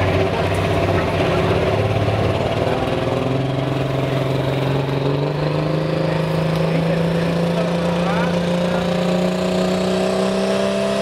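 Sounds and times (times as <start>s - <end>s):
diesel truck engine revving: 0.0s - 11.0s.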